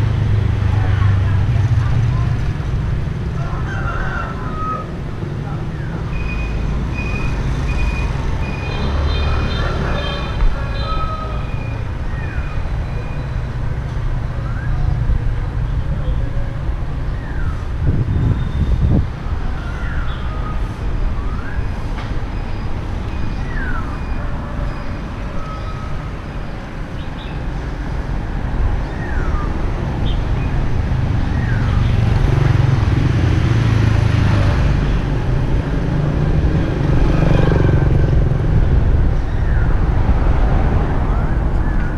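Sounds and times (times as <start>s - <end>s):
traffic rumbling past: 0.0s - 41.9s.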